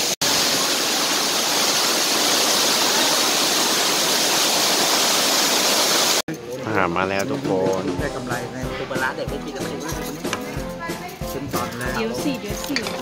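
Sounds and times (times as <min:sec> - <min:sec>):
waterfall rushing: 0:00.0 - 0:06.2.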